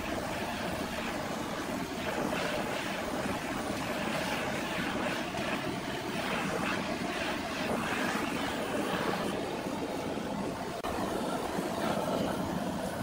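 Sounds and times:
gas torch hissing: 0.0 - 13.0.

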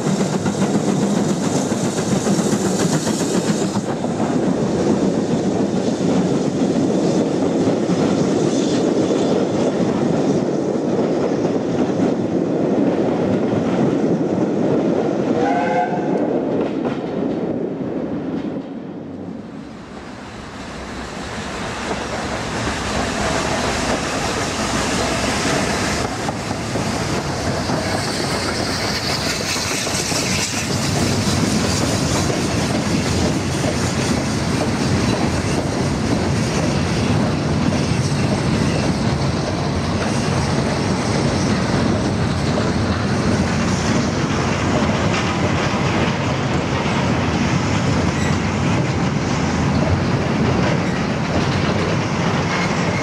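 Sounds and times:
steam locomotive approaching: 0.0 - 53.0
steam train rumbling: 0.0 - 53.0
train whistle: 15.4 - 16.3.

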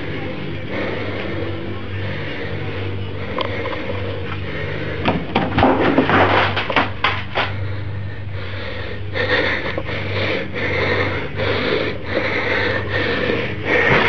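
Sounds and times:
rapid breathing: 0.0 - 14.0
steady low hum: 0.0 - 14.0
sharp knocks and rattles: 5.0 - 7.6.

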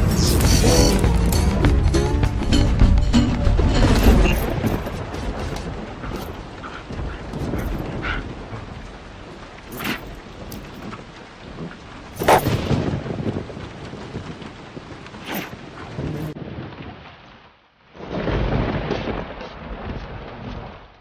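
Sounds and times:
low rumbling noise: 0.0 - 15.0.

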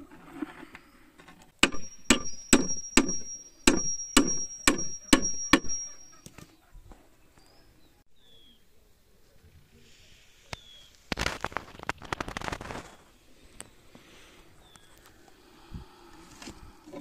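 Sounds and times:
hammer striking wooden plank: 1.6 - 6.2.

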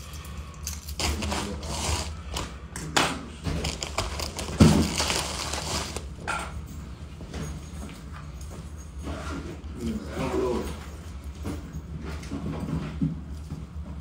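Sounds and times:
plastic bag rustling: 1.0 - 2.4, 3.4 - 6.2.

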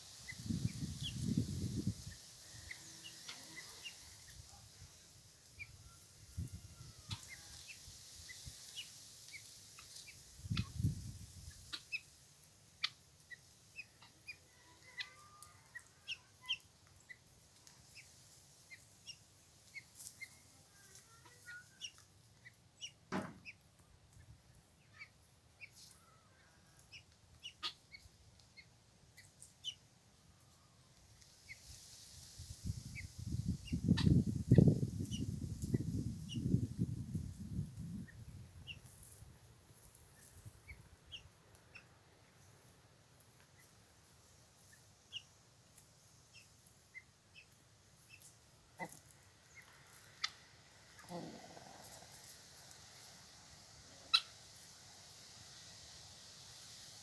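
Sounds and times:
hens clucking softly: 24.2 - 29.8, 32.8 - 36.7, 48.1 - 55.7.

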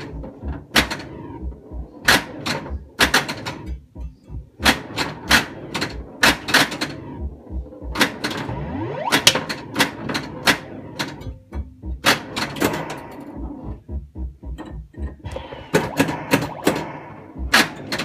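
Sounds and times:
pinball flippers and bumpers clacking: 0.0 - 1.2, 2.0 - 3.8, 4.6 - 7.0, 7.9 - 13.0, 17.5 - 18.0
pinball machine rising tone: 4.6 - 13.6, 15.0 - 18.0.

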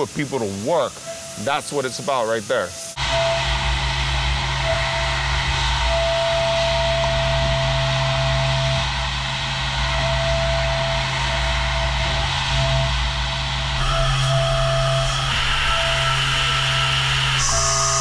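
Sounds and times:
thin whistling tone: 1.0 - 3.4, 14.0 - 18.0
milling machine cutting: 3.0 - 18.0.

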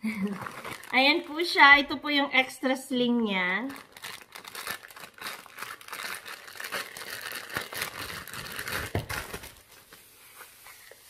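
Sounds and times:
plastic bag crinkling: 0.1 - 1.9, 3.4 - 9.8.

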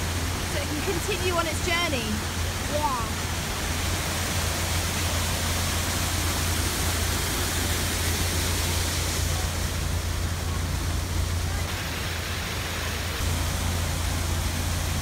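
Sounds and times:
water rushing into lock: 0.0 - 15.0.

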